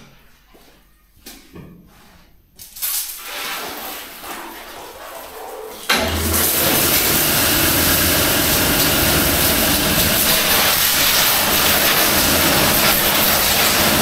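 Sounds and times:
pump humming: 5.9s - 14.0s
pressure washer jet hissing: 6.0s - 14.0s.

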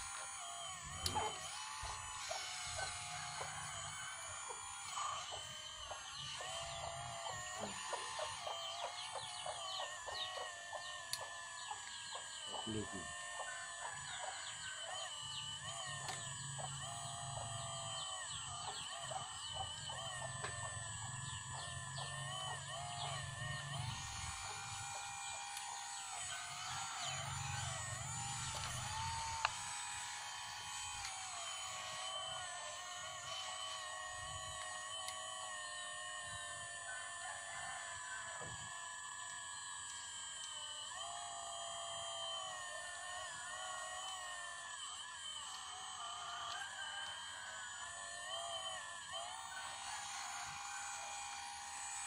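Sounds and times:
hydraulic pump whining: 0.0s - 52.0s.

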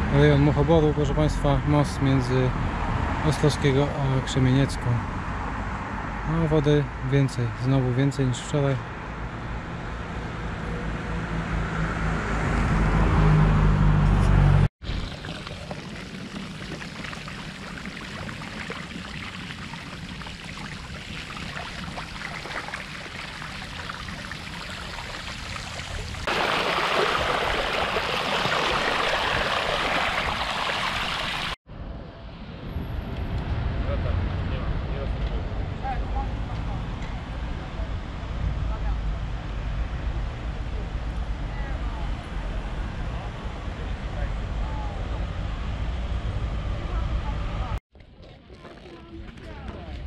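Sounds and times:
bicycle tyres splashing through water: 14.8s - 31.6s.

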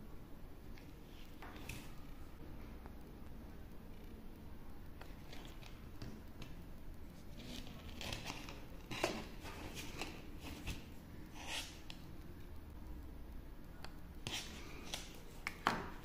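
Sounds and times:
plastic handling scrapes and rustles: 7.2s - 11.8s.

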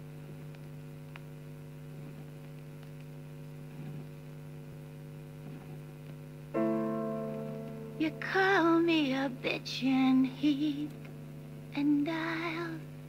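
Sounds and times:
mains hum: 0.0s - 13.0s
music sustained chord: 6.5s - 11.7s.

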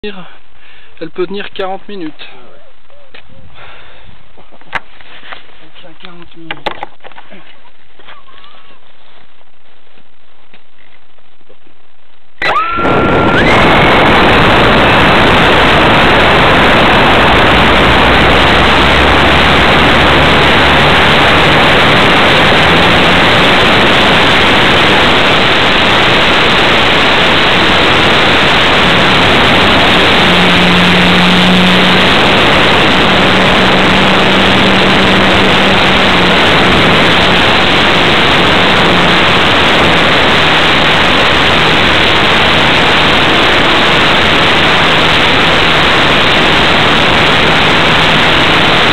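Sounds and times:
model airplane motor and propeller: 12.4s - 48.9s.

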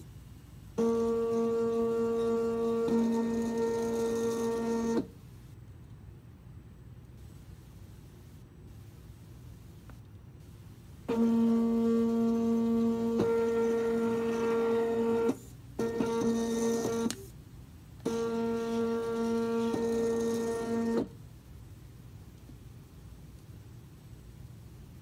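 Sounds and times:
high-pitched mechanical whine: 0.8s - 5.2s, 7.3s - 17.4s, 18.0s - 21.2s.

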